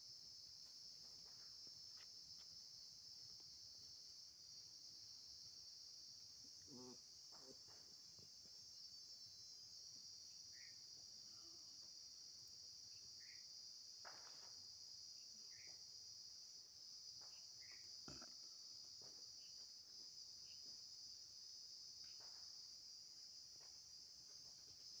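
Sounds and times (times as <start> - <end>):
crickets chirring: 0.0 - 25.0.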